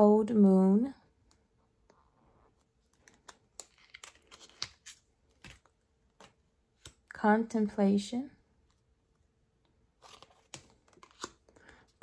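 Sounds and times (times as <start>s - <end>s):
cards clicking and rustling: 2.9s - 7.0s, 10.0s - 12.0s.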